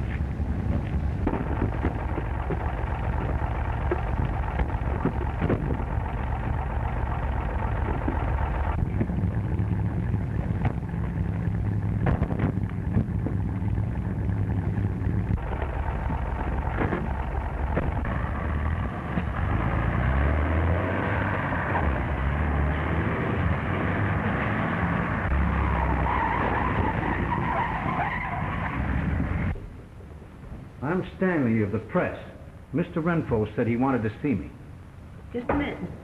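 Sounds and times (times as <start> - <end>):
sharp knocks and thumps: 0.0 - 18.2, 18.8 - 19.7
car engine running: 0.0 - 29.6.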